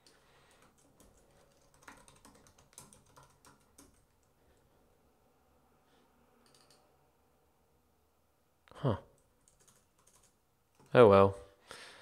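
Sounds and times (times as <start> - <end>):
faint keyboard typing: 0.0 - 4.7, 6.4 - 6.9, 9.1 - 11.0.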